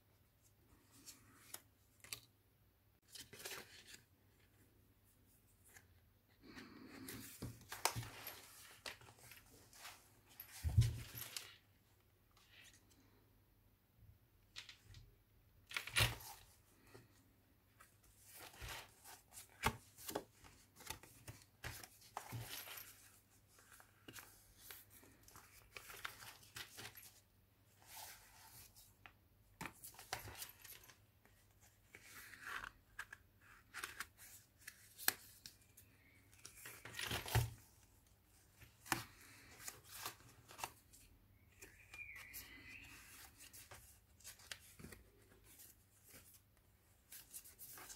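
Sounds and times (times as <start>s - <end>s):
paper pages rustling and turning: 3.0s - 4.7s, 5.5s - 11.7s, 15.7s - 47.9s.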